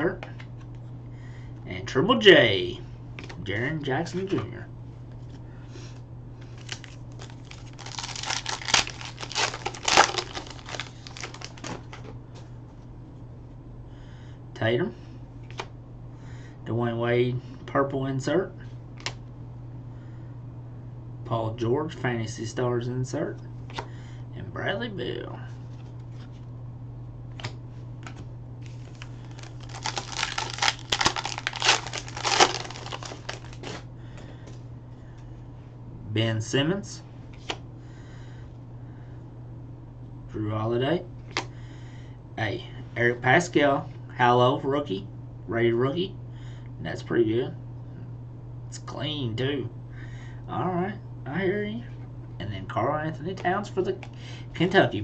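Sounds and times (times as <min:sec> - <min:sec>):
foil wrapper crinkling and tearing: 0:06.6 - 0:12.1, 0:28.7 - 0:33.8.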